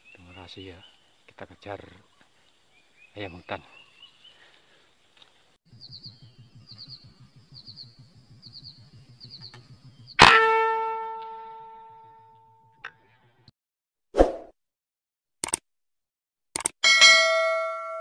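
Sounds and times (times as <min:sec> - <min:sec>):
low pulsing: 0:05.7 - 0:10.2.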